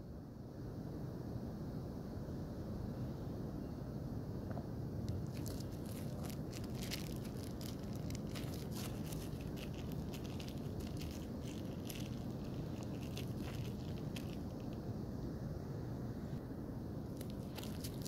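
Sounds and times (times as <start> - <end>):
low background rumble: 2.9 - 18.0
bubble wrap crinkling: 5.1 - 14.8, 17.2 - 18.0.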